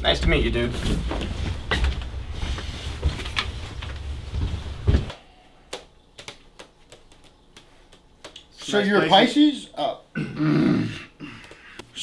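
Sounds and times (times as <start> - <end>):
footsteps walking in: 0.1 - 8.8
front door knocks and shuffles: 3.0 - 5.2.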